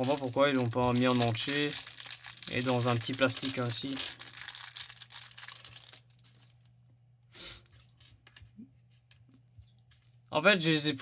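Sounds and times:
plastic bag crinkling and tearing: 0.0s - 6.7s.

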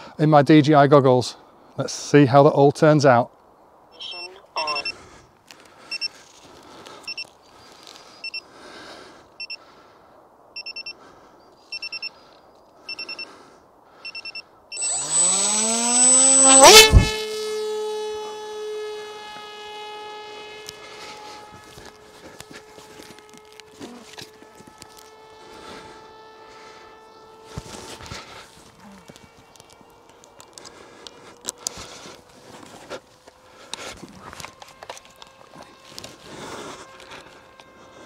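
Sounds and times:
high beeper chirps: 14.1s - 20.4s
electric motor and propeller whine: 14.7s - 38.0s.

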